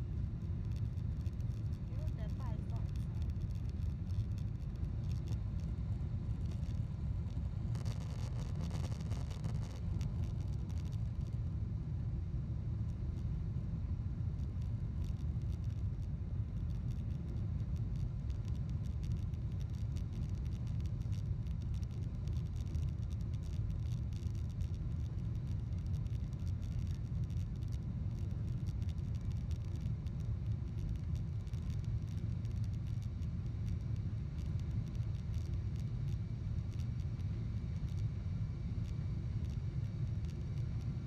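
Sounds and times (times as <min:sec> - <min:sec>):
jet engines rumbling in cabin: 0:00.1 - 0:07.8.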